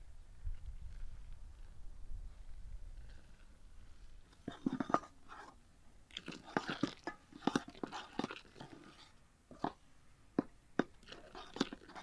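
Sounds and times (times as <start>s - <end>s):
spoon stirring thick batter: 3.2s - 12.0s
spoon scraping and clicking on bowl: 10.8s - 12.0s.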